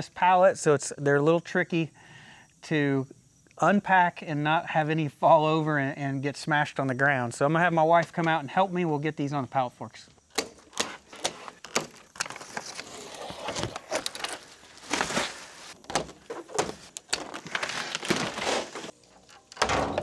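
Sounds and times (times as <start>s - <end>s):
scraping and rustling: 10.6s - 19.5s.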